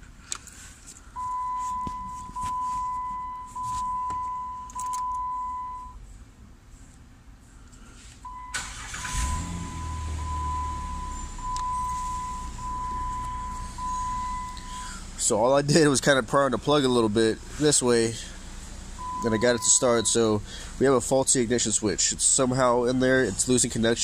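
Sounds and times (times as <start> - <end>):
dashboard warning chime: 1.0 - 6.0, 8.3 - 14.9, 19.0 - 20.3
car engine cranking and starting: 8.3 - 22.4.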